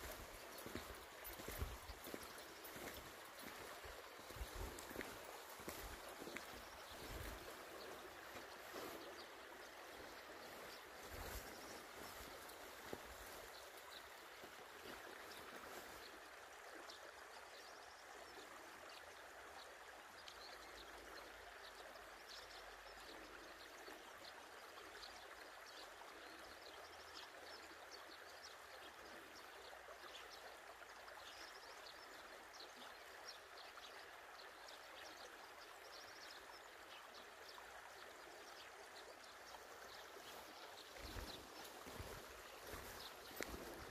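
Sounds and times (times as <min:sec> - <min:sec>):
creek trickling over stones: 0:00.0 - 0:43.9.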